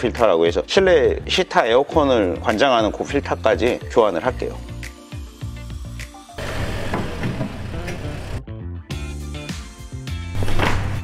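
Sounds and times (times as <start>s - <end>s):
music with held notes: 2.9s - 10.2s.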